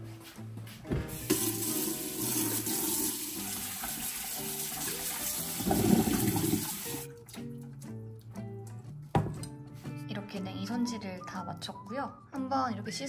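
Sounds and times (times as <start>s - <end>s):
background music: 0.0s - 13.0s
tap running into sink: 0.9s - 7.1s.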